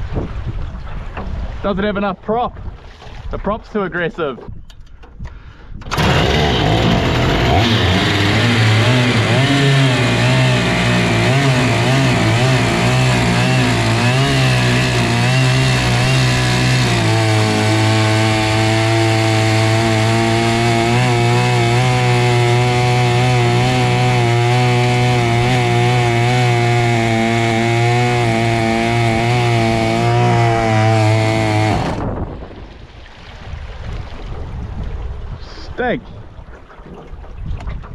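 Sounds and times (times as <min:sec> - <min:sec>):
two-stroke boat motor revving: 0:05.9 - 0:32.2.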